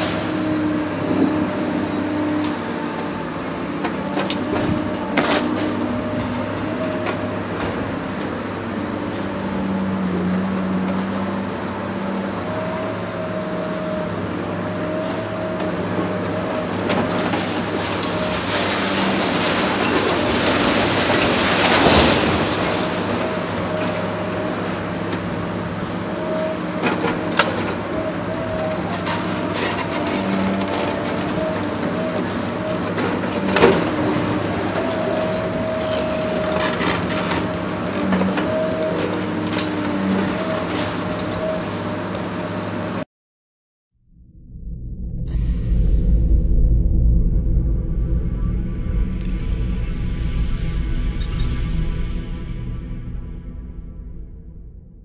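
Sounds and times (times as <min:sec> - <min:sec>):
excavator diesel engine running: 0:00.0 - 0:43.0
rush of noise: 0:44.1 - 0:55.0.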